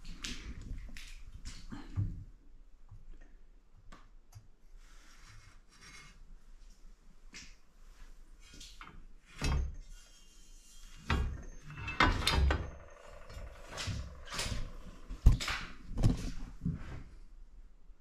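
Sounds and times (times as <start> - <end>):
metal rails knocking and scraping: 10.9 - 16.2.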